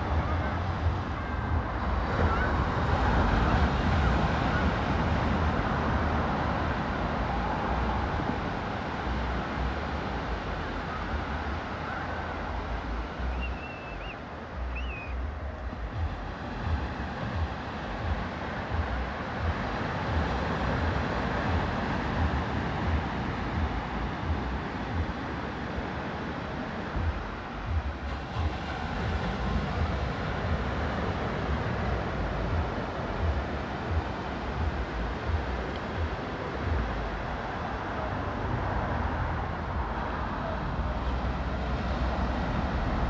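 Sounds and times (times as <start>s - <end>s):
distant surf: 0.0s - 43.0s
highway traffic: 0.0s - 43.0s
wind on microphone: 0.0s - 43.0s.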